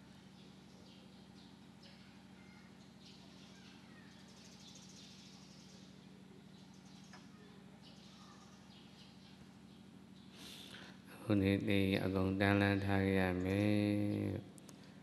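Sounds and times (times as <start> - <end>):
faint bird chirps: 0.0 - 10.9
steady low hum: 0.0 - 15.0.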